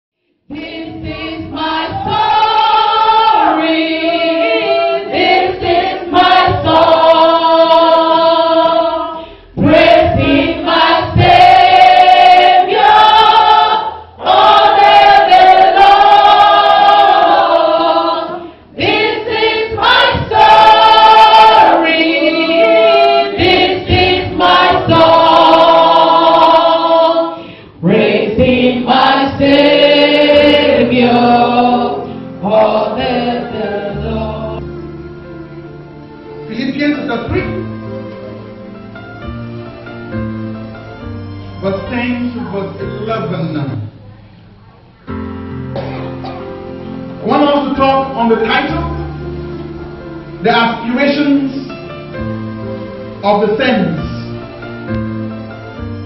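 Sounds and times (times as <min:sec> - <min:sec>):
women singing gospel song: 0:00.4 - 0:34.8.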